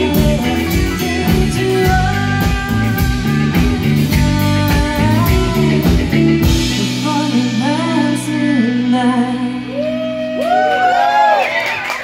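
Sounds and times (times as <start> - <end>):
drums with cymbals: 0.0 - 8.2
live rock band playing: 0.0 - 12.0.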